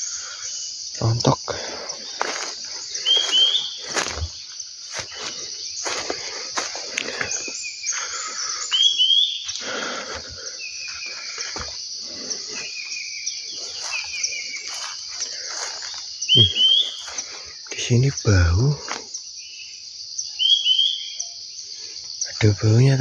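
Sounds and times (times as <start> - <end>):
birds chirping: 0.0 - 23.0
high-pitched insect drone: 0.0 - 23.0
footsteps rustling through ground cover: 1.1 - 19.2.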